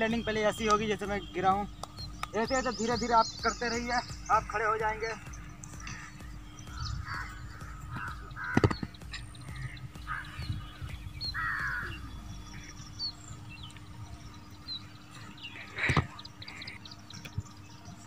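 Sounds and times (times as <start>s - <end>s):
crows cawing: 5.2s - 12.9s.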